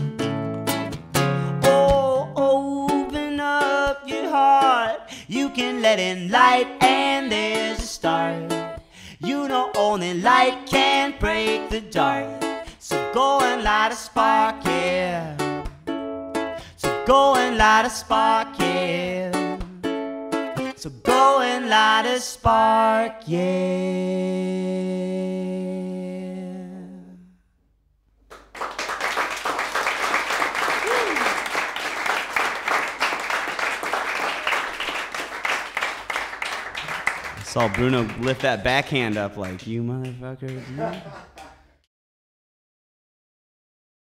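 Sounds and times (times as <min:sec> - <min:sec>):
strummed ukulele: 0:00.0 - 0:24.0
acoustic guitar: 0:00.0 - 0:27.2
woman and man singing: 0:01.6 - 0:15.4, 0:16.8 - 0:19.7, 0:20.8 - 0:27.3.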